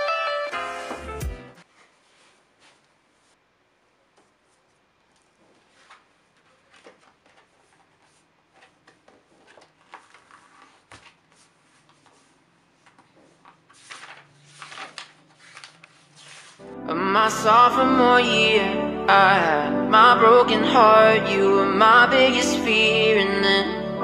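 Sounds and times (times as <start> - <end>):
paper rustling: 4.1 - 16.6.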